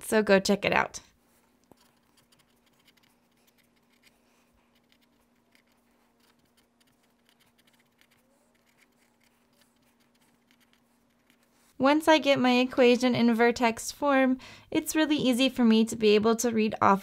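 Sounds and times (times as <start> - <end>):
pen scratching on paper: 1.6 - 11.8.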